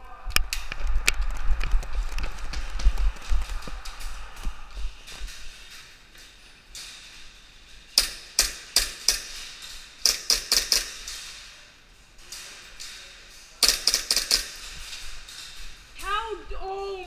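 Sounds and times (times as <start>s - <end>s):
airsoft pistols firing: 13.6s - 14.6s.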